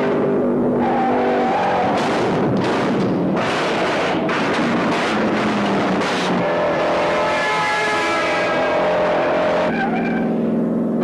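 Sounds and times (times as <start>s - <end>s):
car engines at high revs: 0.0s - 11.0s
road and tyre noise: 0.0s - 11.0s
sharp bangs: 1.6s - 9.7s.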